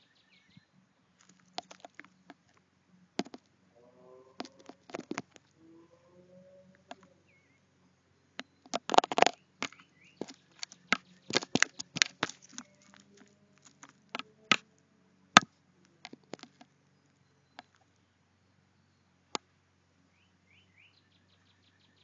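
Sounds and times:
crow tapping on camera: 1.2 - 2.6, 3.2 - 3.5, 4.3 - 5.5, 6.8 - 7.1, 8.4 - 14.7, 15.4 - 16.7.

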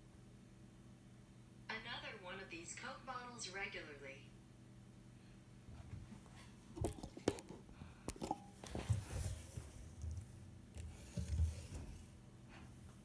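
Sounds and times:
plastic bottles being handled: 6.7 - 12.2.

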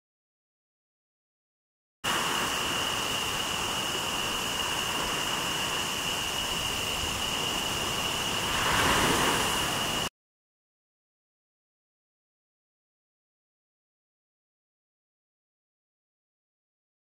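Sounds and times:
waves: 2.0 - 10.1
high-pitched whine: 2.1 - 10.1
wind rushing: 4.0 - 10.1.

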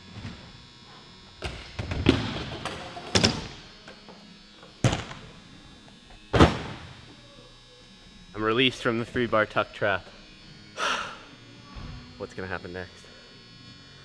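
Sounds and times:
bikes thudding on wooden ramps: 1.4 - 3.6.

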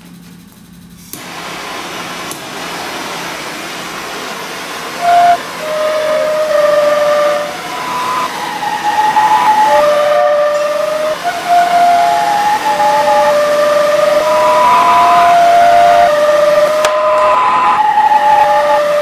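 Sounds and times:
steady hiss: 0.0 - 19.0
glass rods sounding whistle-like tones: 5.0 - 19.0.

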